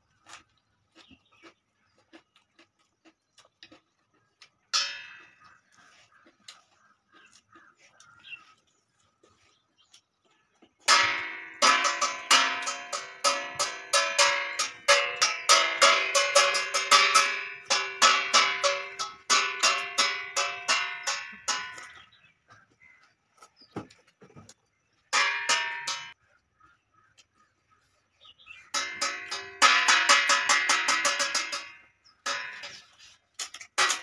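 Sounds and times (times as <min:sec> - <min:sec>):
sharply plucked notes: 0:10.9 - 0:22.1, 0:25.2 - 0:26.2.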